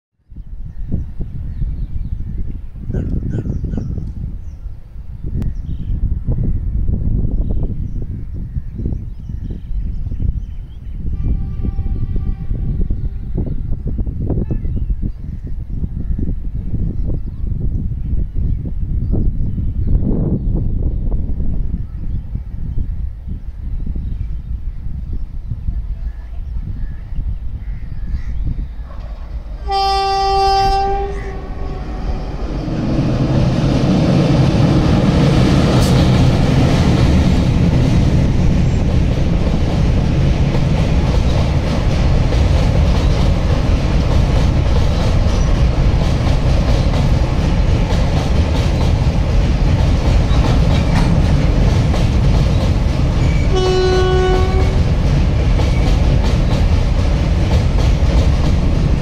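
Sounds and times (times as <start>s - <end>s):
train rumbling across bridge: 0.4s - 59.0s
train horn blast: 11.1s - 13.4s, 29.5s - 32.6s, 53.2s - 54.9s.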